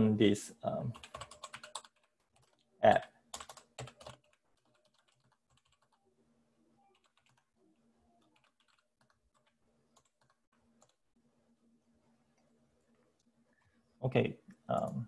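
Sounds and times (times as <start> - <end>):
computer keyboard typing: 0.9 - 6.0, 6.8 - 7.5, 8.2 - 11.0.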